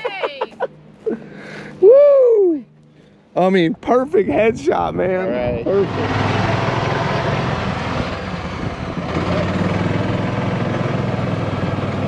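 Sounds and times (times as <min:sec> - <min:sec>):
rushing noise: 0:05.6 - 0:10.7
golf cart motor hum: 0:05.6 - 0:12.0.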